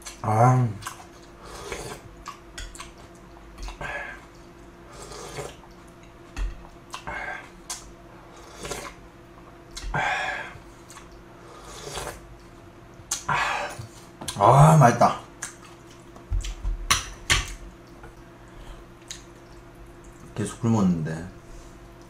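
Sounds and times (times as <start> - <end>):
noodle slurping and chewing: 0.8 - 6.0, 7.0 - 9.0, 10.8 - 12.3.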